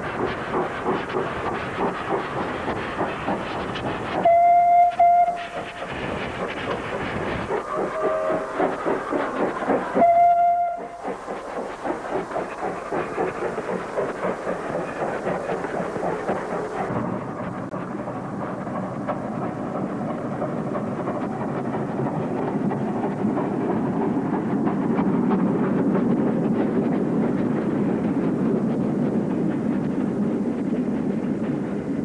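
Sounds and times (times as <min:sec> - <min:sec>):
steam locomotive chuffing: 0:00.0 - 0:32.0
steam locomotive whistle: 0:04.2 - 0:05.7, 0:07.8 - 0:08.8, 0:09.9 - 0:11.0.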